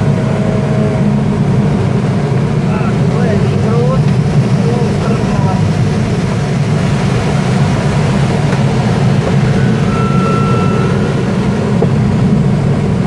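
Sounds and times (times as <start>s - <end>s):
air rushing around cockpit: 0.0s - 13.0s
faint short high tone: 9.6s - 11.1s.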